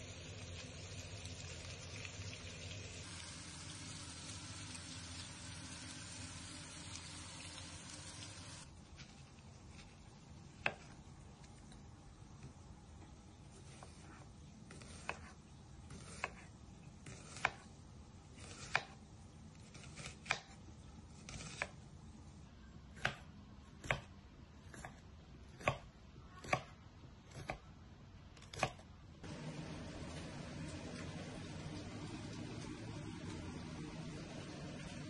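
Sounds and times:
knife slicing vegetables: 13.5s - 21.8s.

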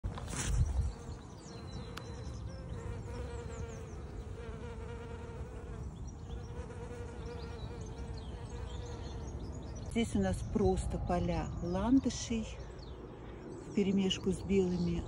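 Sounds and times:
flying insect buzzing: 0.1s - 9.4s.

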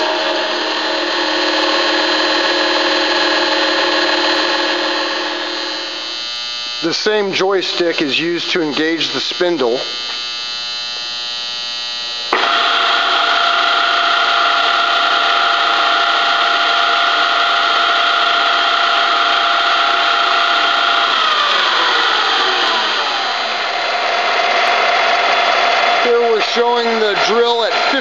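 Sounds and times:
drill press humming: 0.0s - 28.0s
spindle whine: 0.0s - 28.0s.

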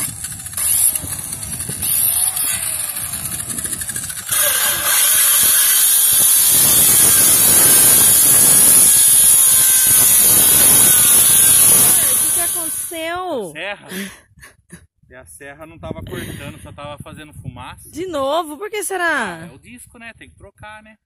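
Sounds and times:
circular saw cutting wood: 0.0s - 13.0s.

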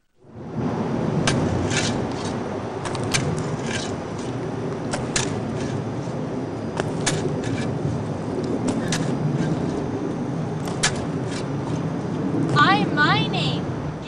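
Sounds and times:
steady low rumble: 0.0s - 14.0s
digging in dry leafy dirt: 1.2s - 12.0s.

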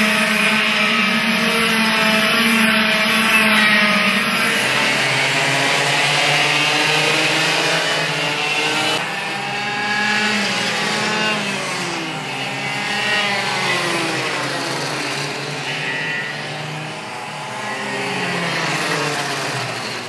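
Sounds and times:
karts' engines buzzing past: 0.0s - 20.0s.

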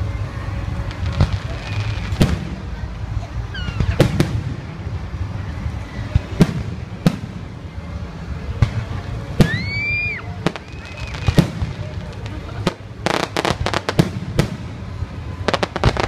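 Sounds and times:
steady low rumble: 0.0s - 16.0s
fireworks bangs: 0.8s - 5.3s, 6.0s - 7.6s, 8.5s - 16.0s
high firework whistle: 9.4s - 11.6s.

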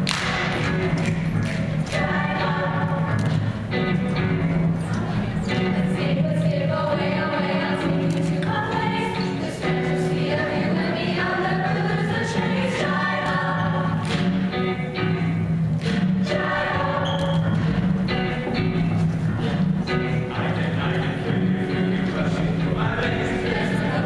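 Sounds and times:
steady bass: 0.0s - 24.0s
choir singing: 1.9s - 3.2s, 4.9s - 14.0s, 16.2s - 17.7s, 20.3s - 24.0s.

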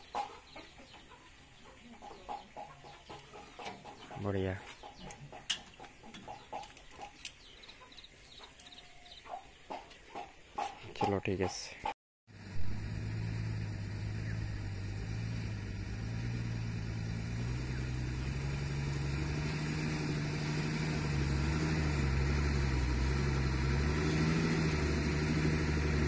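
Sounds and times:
diesel engine idling: 12.3s - 26.0s.

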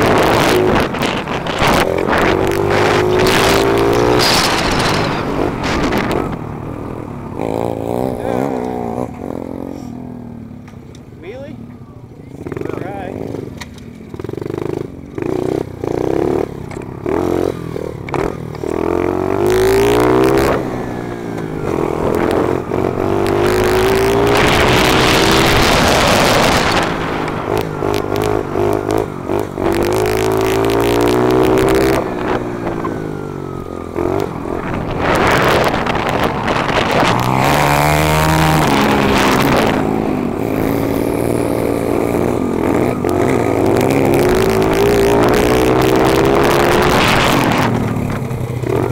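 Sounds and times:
wind on microphone: 0.0s - 6.6s, 21.6s - 48.9s
motorbike engine revving: 0.0s - 48.9s.

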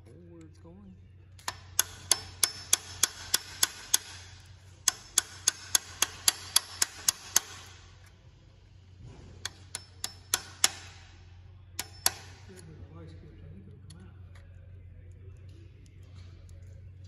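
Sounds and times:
steady low hum: 0.0s - 17.0s
sharp metallic ticks: 1.4s - 4.2s, 4.8s - 7.8s, 9.4s - 10.8s.

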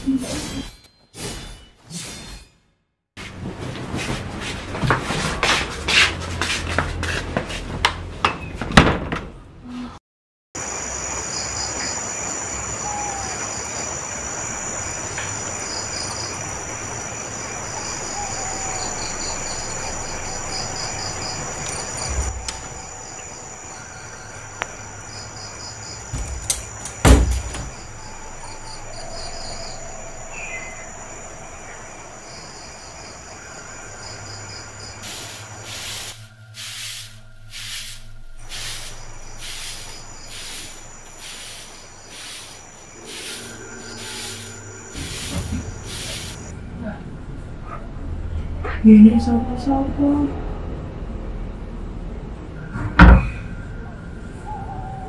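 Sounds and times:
crickets chirping: 10.6s - 46.9s
sharp thump: 26.1s - 27.8s.

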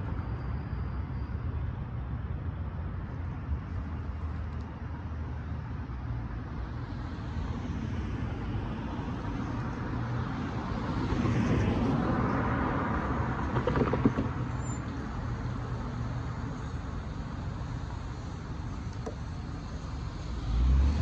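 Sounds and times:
low traffic rumble: 0.0s - 21.0s
car driving past: 20.1s - 21.0s.

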